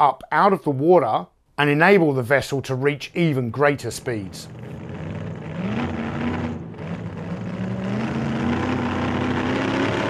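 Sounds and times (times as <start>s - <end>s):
motor droning: 4.3s - 9.9s.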